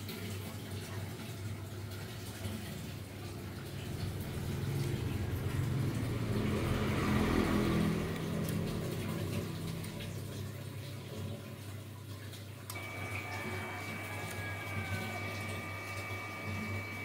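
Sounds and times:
vehicle passing by: 3.6 - 11.0.

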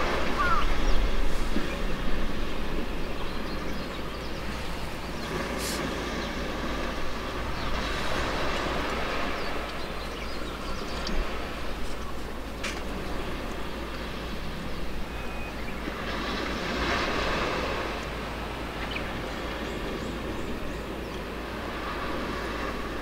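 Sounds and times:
even hiss: 4.5 - 6.2.

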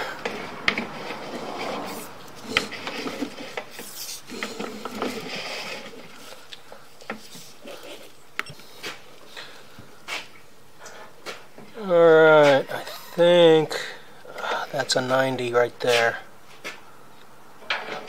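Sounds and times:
cable rubbing and scraping in drain: 0.2 - 8.0.

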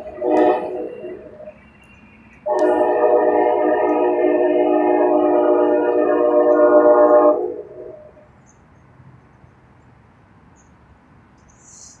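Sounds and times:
train air horn chord: 0.0 - 8.2.

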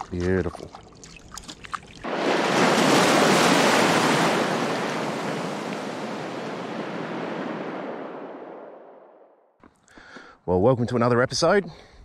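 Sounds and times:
ocean waves surging: 2.0 - 9.2.

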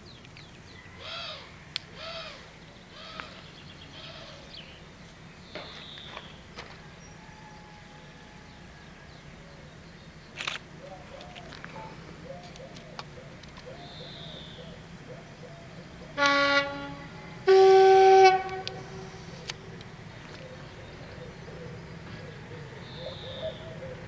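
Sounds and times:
two-tone train horn: 16.2 - 19.2.

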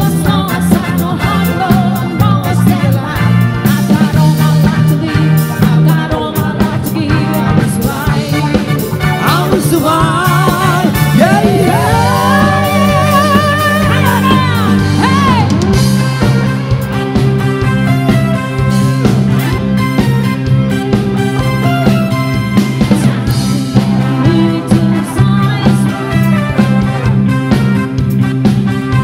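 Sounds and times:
woman singing with vibrato: 0.0 - 15.8, 23.9 - 26.9
drums and bass beat: 0.0 - 29.0
electric guitar: 0.0 - 29.0
keyboard: 0.0 - 29.0.

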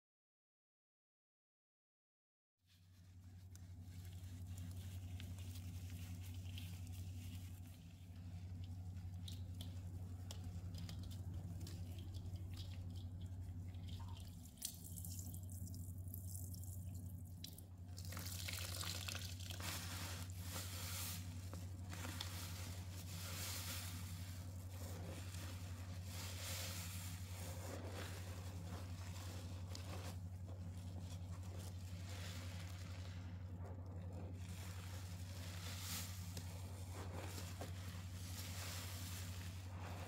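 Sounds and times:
low electrical hum: 2.7 - 40.0
liquid splashing and dripping: 8.5 - 20.0.

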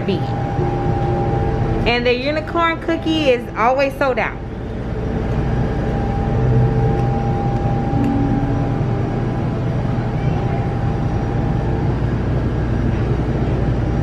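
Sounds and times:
low hum and rumble: 0.0 - 14.0
faint held tone: 7.9 - 9.8.

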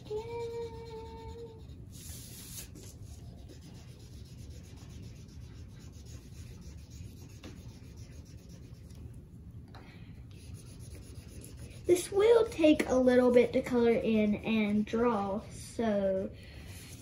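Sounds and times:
marker rubbing on paper: 0.2 - 9.0, 10.3 - 15.0.

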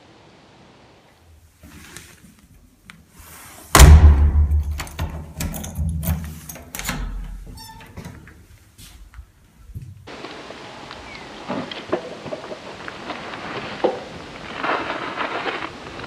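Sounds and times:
loud thump: 3.8 - 5.3
door latch clicks: 4.3 - 7.4.

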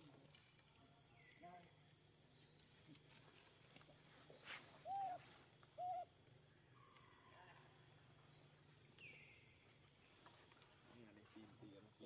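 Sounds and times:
infant monkey coo calls: 4.8 - 6.2.

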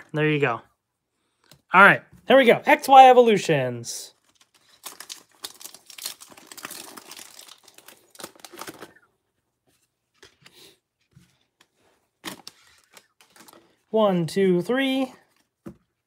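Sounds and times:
foil wrapper tearing and crinkling: 4.2 - 9.0.

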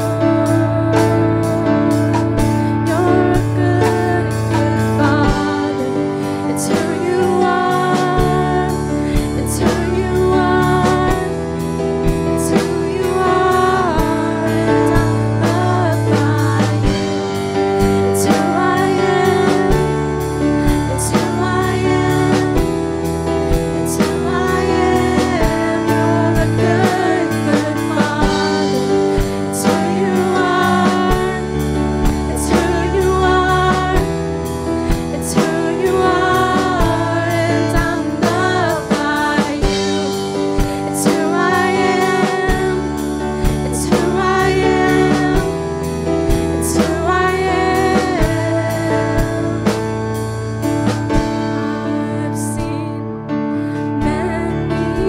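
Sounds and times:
drum kit steady beat: 0.0 - 51.7
keyboard: 0.0 - 55.0
women singing together: 2.9 - 11.4, 12.4 - 17.2, 18.2 - 20.0, 20.9 - 22.6, 23.9 - 31.6, 32.3 - 34.1, 35.0 - 45.7, 46.6 - 49.8.

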